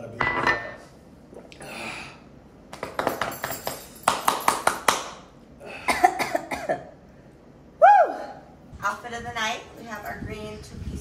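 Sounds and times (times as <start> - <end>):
woman clapping hands rapidly: 2.7 - 5.2.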